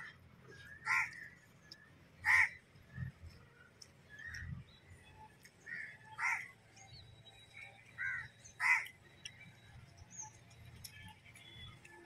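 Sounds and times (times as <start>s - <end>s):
crows cawing: 0.0s - 1.4s, 2.2s - 2.6s, 5.7s - 6.5s, 8.0s - 8.9s.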